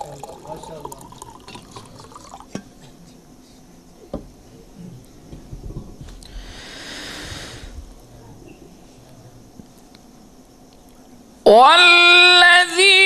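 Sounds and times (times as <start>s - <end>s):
person breathing into microphone: 6.2s - 7.9s
low background rumble: 7.2s - 9.6s.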